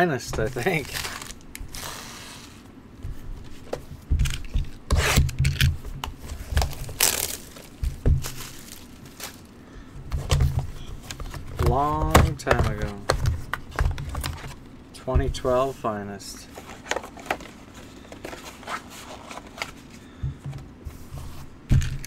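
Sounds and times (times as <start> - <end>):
cards rustling: 0.3 - 9.6, 10.2 - 14.6, 16.4 - 20.3.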